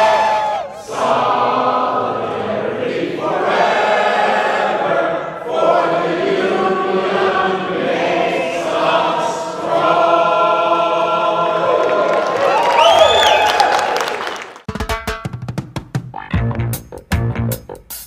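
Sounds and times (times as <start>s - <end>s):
group singing in unison: 0.0s - 12.4s.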